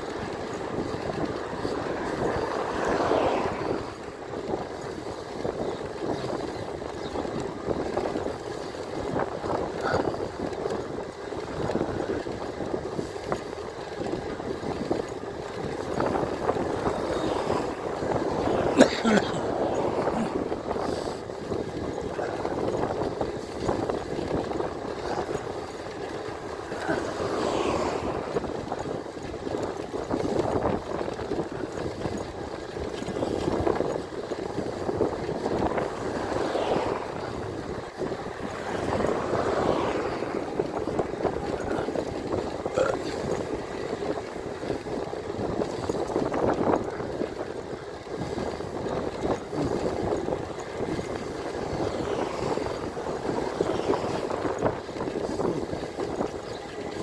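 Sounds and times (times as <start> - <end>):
road noise: 0.0 - 57.0
wind rushing over microphone: 0.0 - 57.0.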